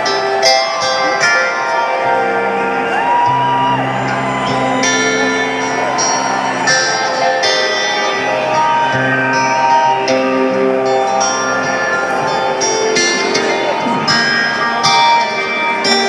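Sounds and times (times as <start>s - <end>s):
acoustic guitar playing: 0.0s - 16.0s.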